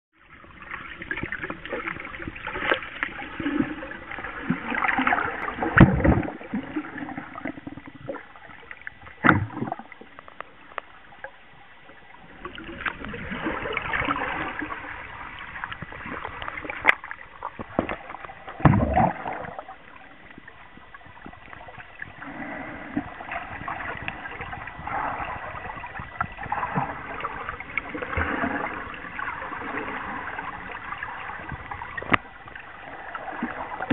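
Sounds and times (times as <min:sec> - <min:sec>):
water sloshing and bubbling: 0:00.1 - 0:33.9
dull thumps: 0:18.6 - 0:19.3.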